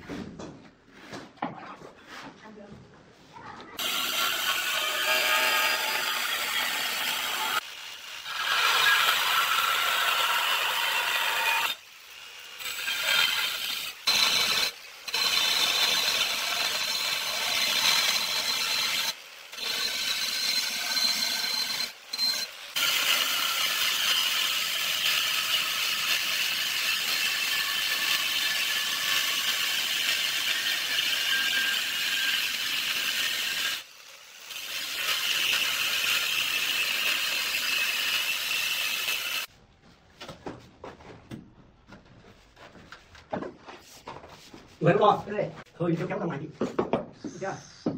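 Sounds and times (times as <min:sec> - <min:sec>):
angle grinder cutting tile: 0:03.8 - 0:39.5.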